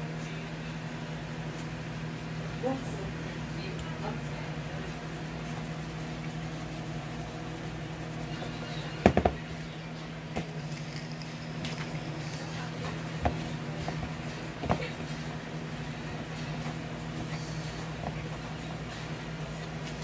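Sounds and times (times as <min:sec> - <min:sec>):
steady low hum: 0:00.0 - 0:20.0
plastic bowl knocking: 0:09.0 - 0:09.4.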